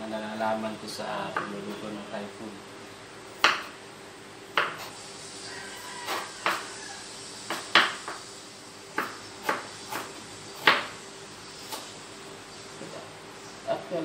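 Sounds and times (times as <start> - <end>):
knife chopping on wooden board: 3.4 - 3.8, 4.5 - 4.9, 6.1 - 6.7, 7.5 - 8.2, 9.0 - 11.0.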